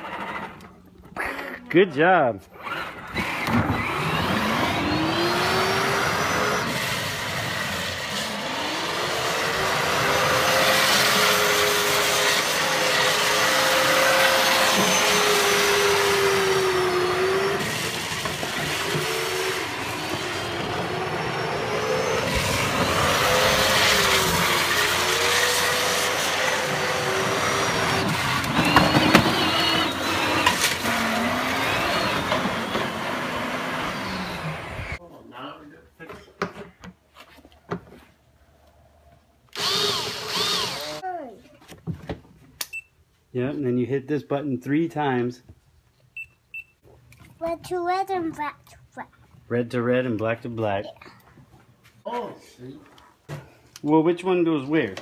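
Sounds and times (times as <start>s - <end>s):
wheels on pavement: 0.0s - 1.4s, 2.4s - 35.0s
toy car electric motor whining: 2.6s - 35.0s, 39.5s - 41.0s.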